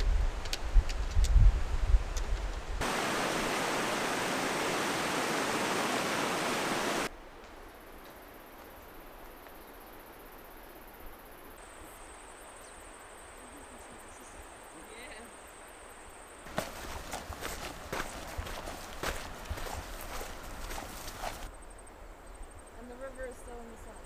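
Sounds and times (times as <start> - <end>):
wind rumbling on microphone: 0.0 - 7.1
running water rushing: 2.8 - 7.1, 16.5 - 21.5.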